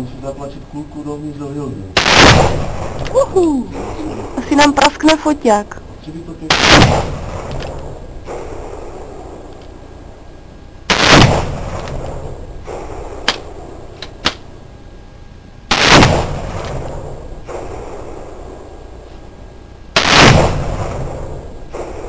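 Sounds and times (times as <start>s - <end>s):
faint sharp cracks: 10.9s - 14.5s.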